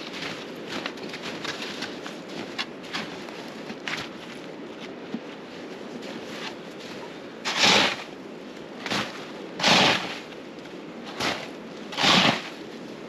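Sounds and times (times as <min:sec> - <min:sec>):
snow shovel scraping snow: 0:06.1 - 0:08.1, 0:08.8 - 0:10.3, 0:11.1 - 0:12.7.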